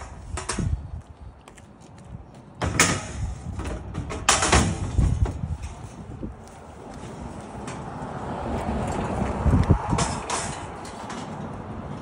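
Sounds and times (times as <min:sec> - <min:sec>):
metal ramp clanking and scraping: 0:02.6 - 0:06.1, 0:09.9 - 0:11.6.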